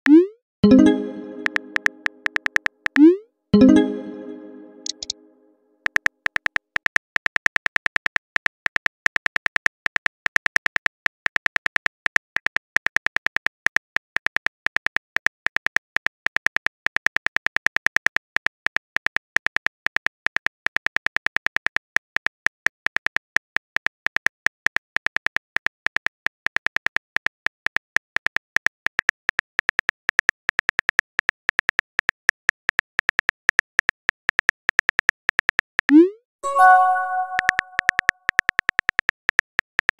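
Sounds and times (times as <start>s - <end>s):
phone keyboard typing clicks: 4.8s - 5.2s.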